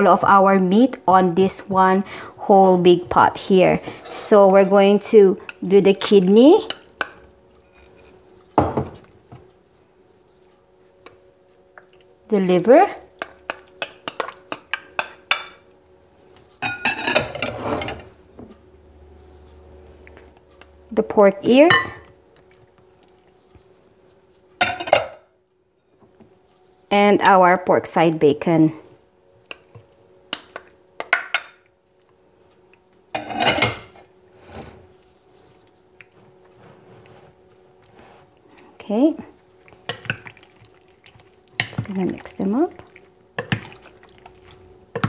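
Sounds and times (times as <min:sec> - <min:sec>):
glass bowls clinking: 0:16.6 - 0:18.0.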